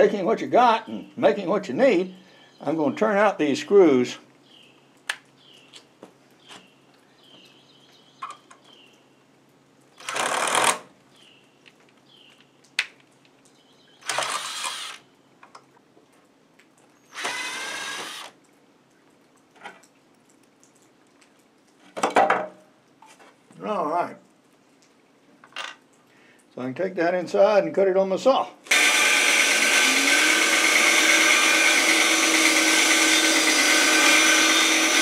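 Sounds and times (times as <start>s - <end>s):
power driver backing out screws: 28.7s - 35.0s.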